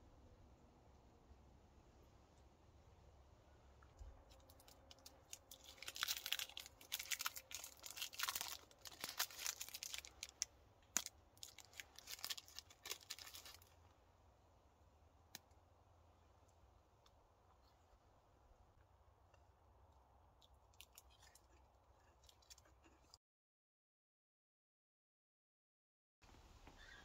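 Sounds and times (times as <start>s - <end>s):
rustling and crinkling: 3.9s - 14.0s.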